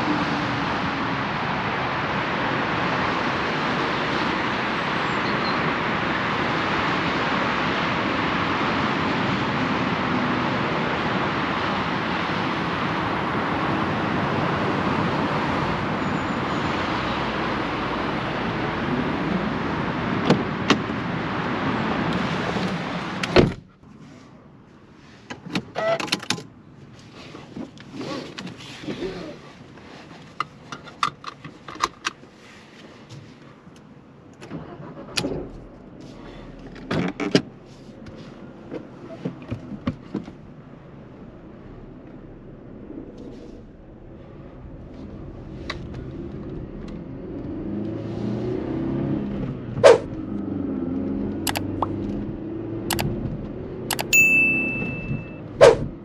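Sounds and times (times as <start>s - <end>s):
traffic rushing: 0.0s - 56.0s.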